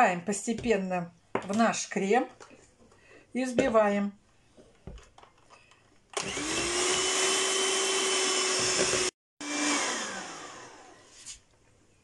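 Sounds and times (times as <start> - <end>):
electric hand mixer whine: 6.2 - 11.1.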